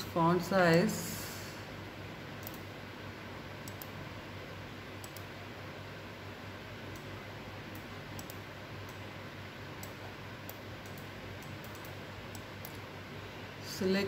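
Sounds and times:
steady low hum: 0.0s - 14.0s
computer mouse clicks: 2.4s - 2.7s, 3.6s - 4.0s, 5.0s - 5.3s, 7.7s - 9.0s, 9.8s - 12.8s.

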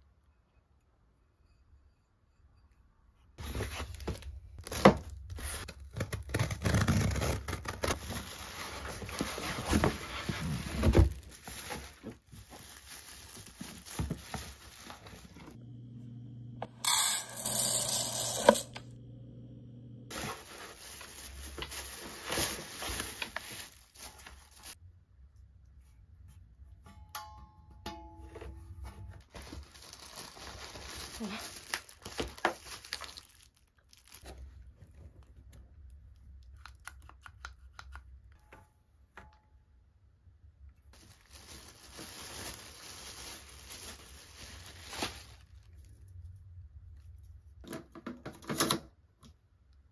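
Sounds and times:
plastic wrap crinkling: 3.9s - 15.6s, 20.1s - 24.8s, 29.2s - 34.6s, 40.9s - 46.0s
low hum: 15.6s - 20.1s
rice pouring into cup: 16.6s - 18.8s
utensils clicking and tapping: 16.6s - 18.9s.

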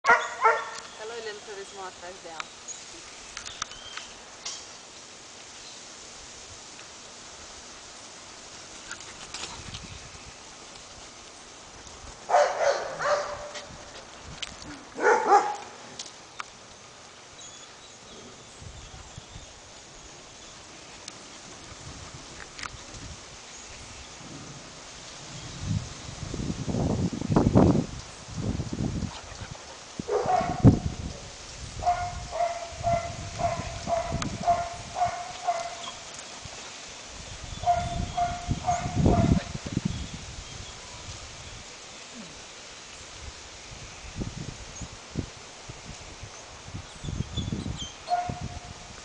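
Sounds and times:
puppies barking: 0.1s - 0.8s, 12.3s - 13.6s, 15.0s - 15.8s, 30.1s - 30.8s, 31.8s - 36.2s, 37.6s - 39.5s.

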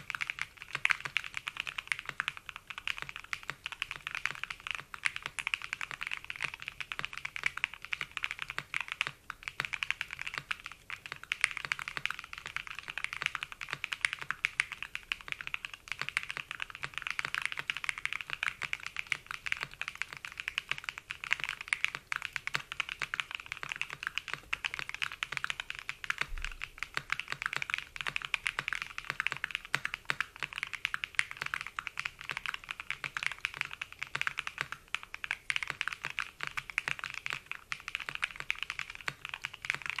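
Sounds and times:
mechanical keyboard typing: 0.0s - 40.0s.

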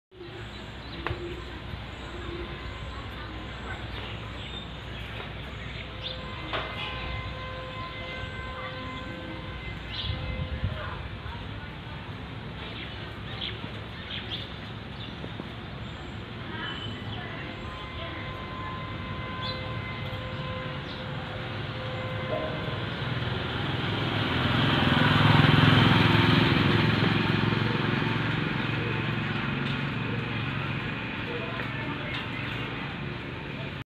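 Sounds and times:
low outdoor rumble: 0.1s - 33.8s
motorbike engine passing by: 22.0s - 33.1s.

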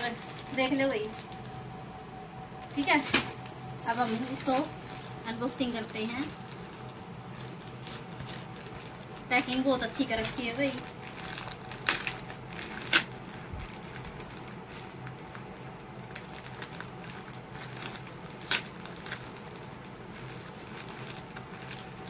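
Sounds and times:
plastic mailer bag crinkling: 0.0s - 1.6s, 2.7s - 22.0s
sharp plastic crackles: 5.8s - 22.0s.

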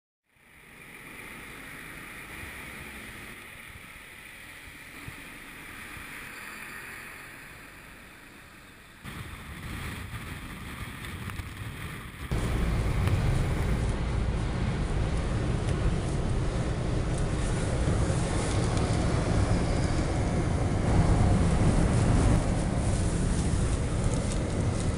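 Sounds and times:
tyres on slushy road: 0.3s - 24.9s
wind on microphone: 9.1s - 24.9s
truck driving past: 12.3s - 24.9s.

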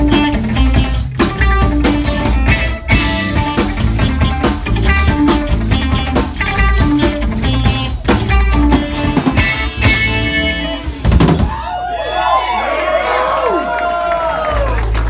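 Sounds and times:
drum and cymbal hits: 0.0s - 11.7s
live rock band: 0.0s - 11.9s.

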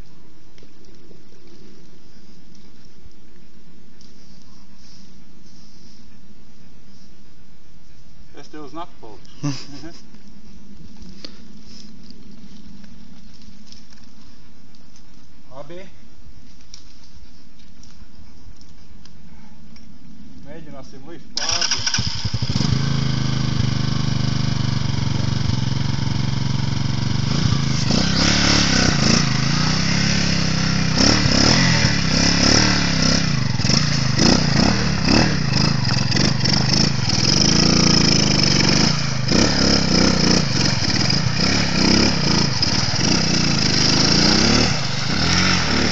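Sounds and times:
quad engine revving: 21.4s - 45.9s.

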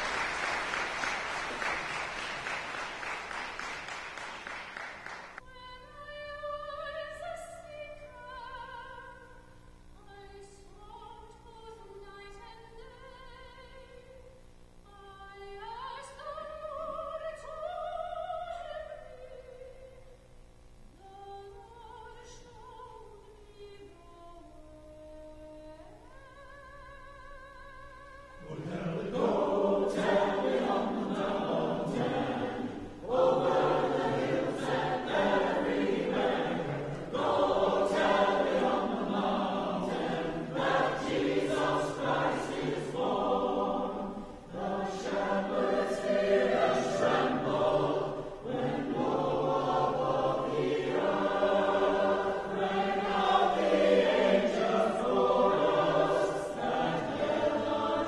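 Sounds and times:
choir singing: 0.0s - 5.4s, 28.4s - 58.0s.

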